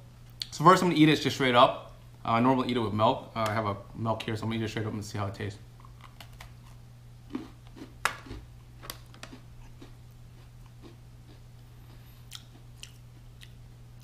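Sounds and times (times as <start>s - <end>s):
person chewing crunchy cookie: 5.8s - 14.0s.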